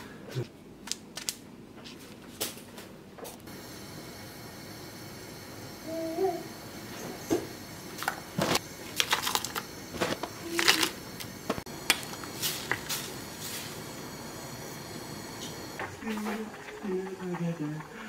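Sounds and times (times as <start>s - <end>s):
rice crust crunching and cracking: 8.0s - 13.6s.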